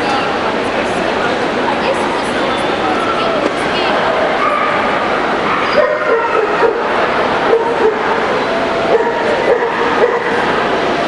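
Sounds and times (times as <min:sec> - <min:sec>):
crowd din in echoing hall: 0:00.0 - 0:11.0
dogs barking and yipping: 0:04.2 - 0:10.6.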